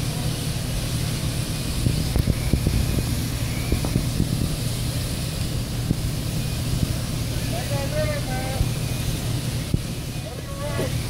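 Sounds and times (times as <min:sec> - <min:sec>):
low engine drone: 0:00.0 - 0:11.0.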